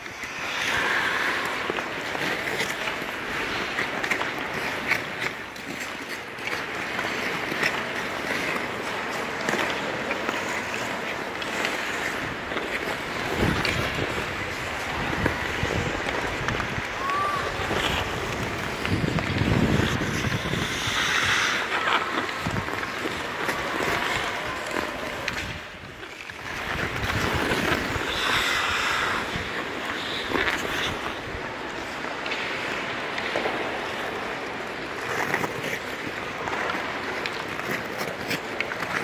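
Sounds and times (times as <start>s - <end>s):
skate blades scraping ice: 0.0s - 39.0s
wind noise on microphone: 11.5s - 32.2s.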